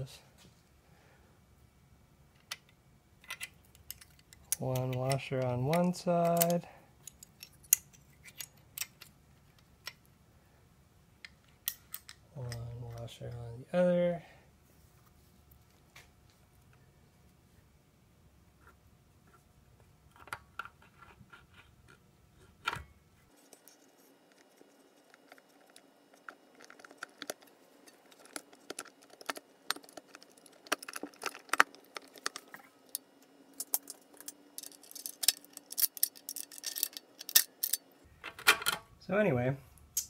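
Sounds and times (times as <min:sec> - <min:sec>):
metal parts clinking: 0:03.2 - 0:09.1, 0:26.2 - 0:38.8.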